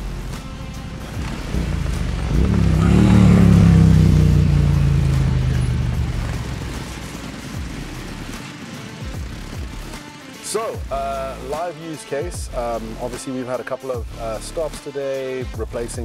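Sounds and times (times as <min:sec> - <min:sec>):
motorcycle riding past: 0:00.4 - 0:10.4.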